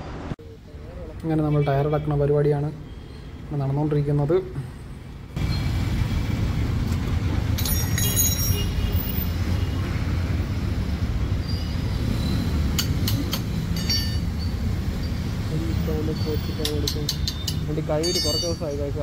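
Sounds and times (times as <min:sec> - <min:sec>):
high metallic squeals: 0:11.4 - 0:12.9, 0:13.6 - 0:15.2.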